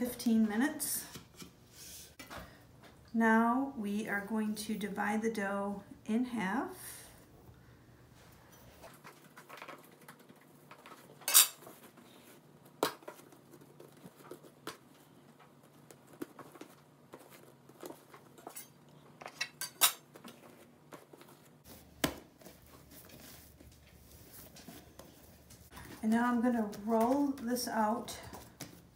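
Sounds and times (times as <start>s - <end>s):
metal utensils clinking on stone: 11.3s - 11.6s, 18.5s - 20.0s.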